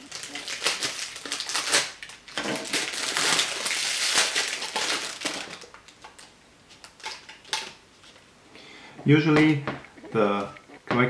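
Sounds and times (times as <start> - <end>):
plastic wrapping crinkling: 0.0 - 8.2.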